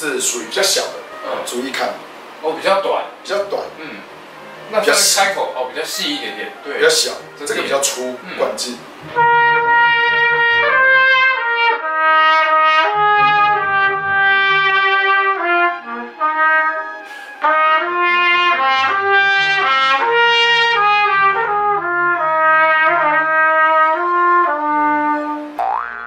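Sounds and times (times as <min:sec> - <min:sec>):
brass horn playing slow melody: 0:09.0 - 0:25.6.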